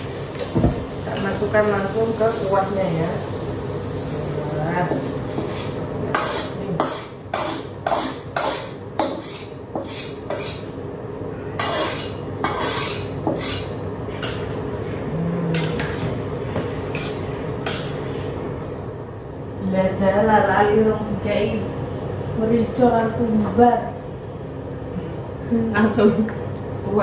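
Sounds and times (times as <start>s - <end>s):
spatula scraping metal wok: 5.0s - 10.8s, 11.6s - 14.5s, 16.9s - 18.1s.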